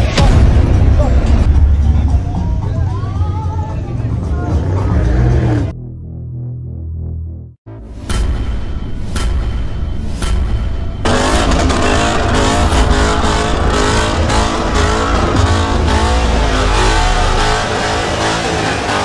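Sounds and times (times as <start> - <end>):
car engine revving: 3.8 - 7.8, 11.0 - 19.0.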